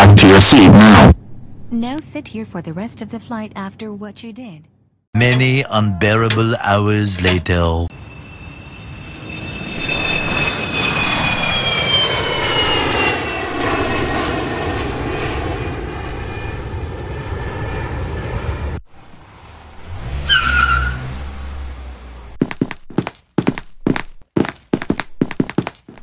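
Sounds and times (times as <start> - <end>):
jet airliner taking off: 5.2 - 20.0
car engine rumble: 18.9 - 23.1.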